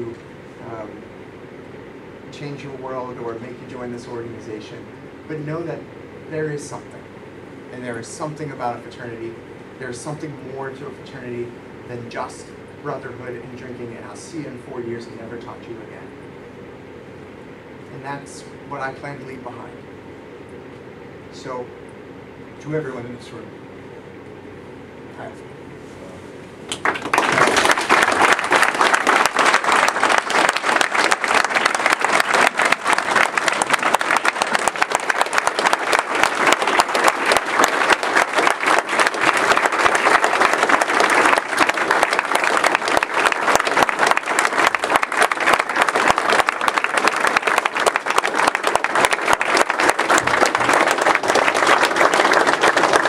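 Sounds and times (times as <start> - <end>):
crowd applauding: 26.7 - 53.0.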